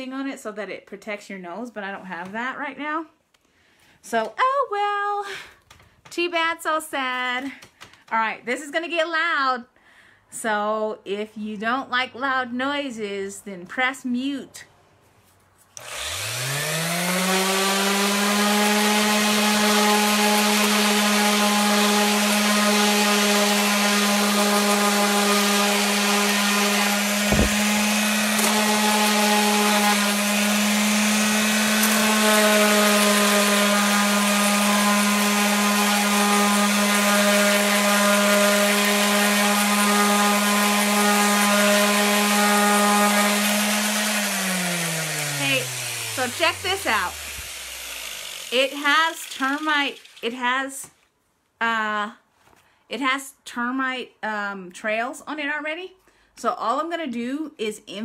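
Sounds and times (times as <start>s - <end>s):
electric sander sanding wood: 15.8s - 50.4s.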